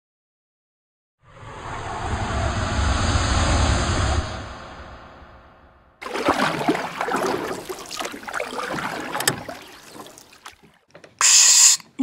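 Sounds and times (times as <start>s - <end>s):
water rushing and gurgling: 6.0s - 10.9s.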